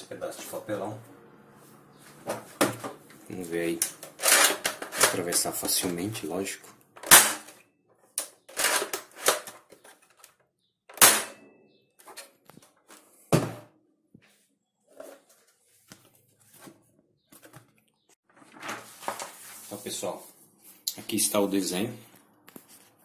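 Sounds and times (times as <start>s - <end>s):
plastic toy rifle clicks and knocks: 3.8s - 5.5s
heavy thunk: 13.3s - 13.7s
paper rustle: 18.3s - 20.4s.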